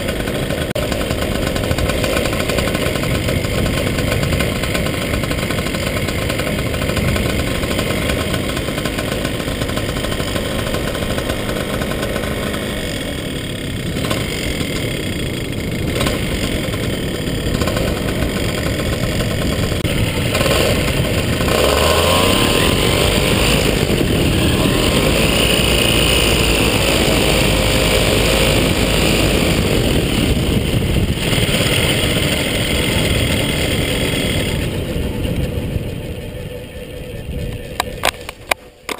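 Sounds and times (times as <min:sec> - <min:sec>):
paramotor engine running: 0:00.0 - 0:38.9.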